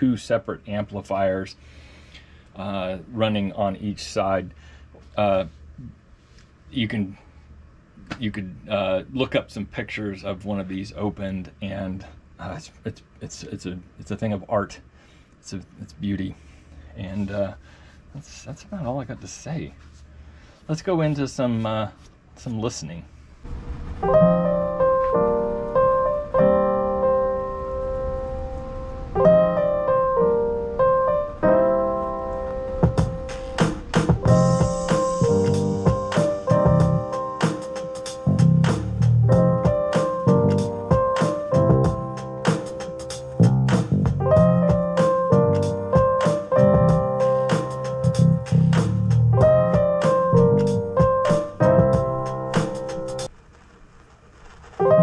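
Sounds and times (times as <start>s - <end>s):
slow solo piano music: 23.8s - 43.1s, 44.0s - 53.3s.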